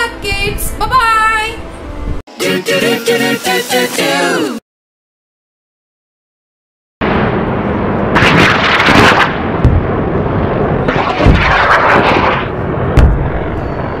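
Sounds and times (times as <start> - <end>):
thunder cracks with low boom: 7.0 - 14.0
electric sparks crackling: 10.9 - 12.6.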